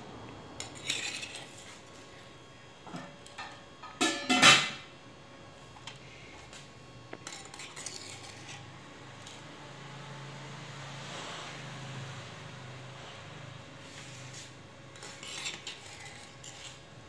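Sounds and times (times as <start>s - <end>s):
metal spoon scraping clay pot: 0.6s - 1.8s, 7.2s - 8.7s, 14.2s - 16.9s.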